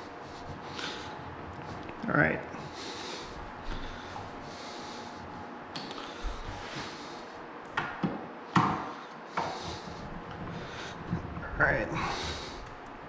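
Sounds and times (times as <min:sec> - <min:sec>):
knocks of furniture parts: 0:07.8 - 0:09.7.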